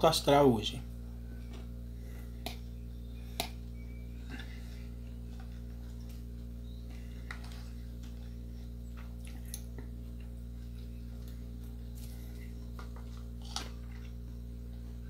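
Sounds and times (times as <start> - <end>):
steady low hum: 0.0 - 15.0
chewing: 6.9 - 14.8.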